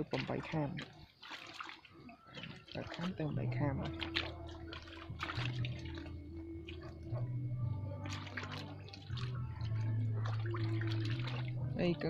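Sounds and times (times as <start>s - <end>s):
small drips and splashes: 0.0s - 12.0s
water splashing and trickling: 0.0s - 12.0s
low hum shifting in pitch: 3.1s - 12.0s.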